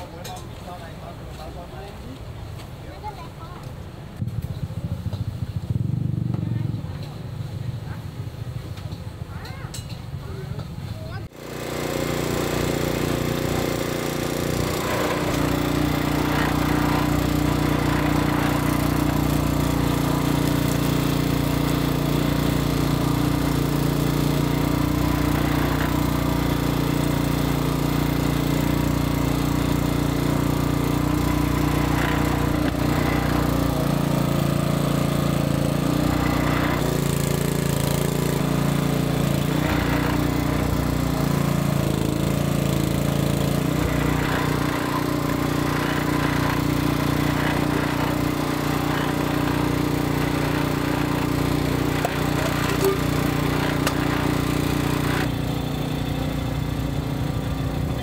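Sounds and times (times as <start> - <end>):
juice press motor humming: 11.3 - 58.0.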